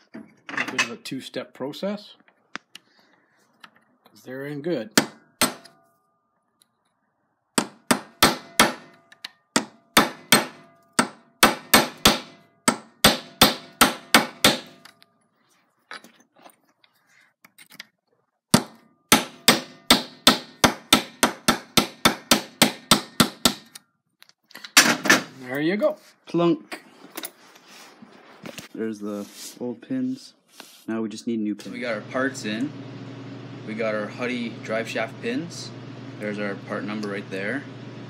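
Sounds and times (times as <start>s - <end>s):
hammer striking metal punch: 4.9s - 5.8s, 7.6s - 15.0s, 18.5s - 23.8s.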